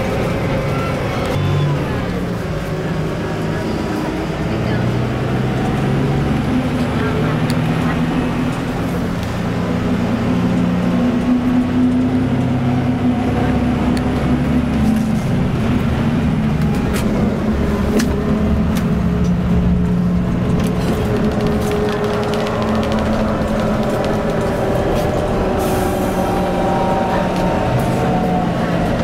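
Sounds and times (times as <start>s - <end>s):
coach cabin engine drone: 0.0s - 29.0s
road noise: 0.0s - 29.0s
sharp clicks and rattles: 18.0s - 25.3s.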